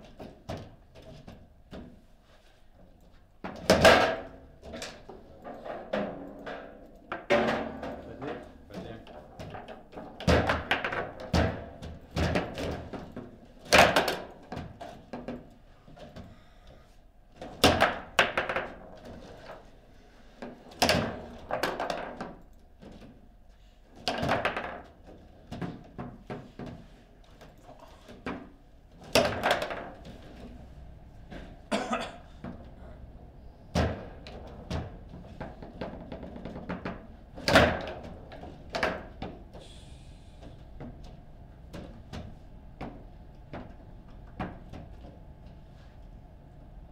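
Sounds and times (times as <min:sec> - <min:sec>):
foosball rods clacking: 0:03.6 - 0:15.5, 0:17.5 - 0:19.5, 0:20.6 - 0:22.5, 0:24.0 - 0:26.6, 0:28.1 - 0:30.6, 0:34.0 - 0:39.6
foosball ball knocking: 0:05.1 - 0:08.6, 0:09.2 - 0:14.4, 0:17.7 - 0:19.0, 0:24.0 - 0:26.9, 0:28.2 - 0:30.5, 0:33.8 - 0:39.4.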